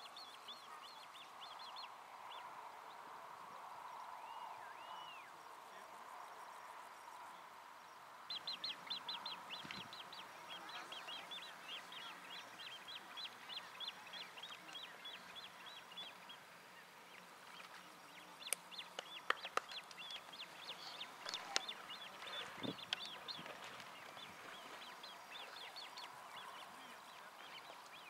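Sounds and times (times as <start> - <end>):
grebe chicks piping: 8.3 - 16.4, 17.4 - 28.0.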